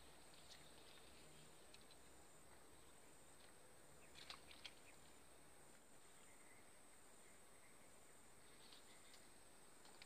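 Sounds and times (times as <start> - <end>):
steady high-pitched hiss: 0.0 - 10.0.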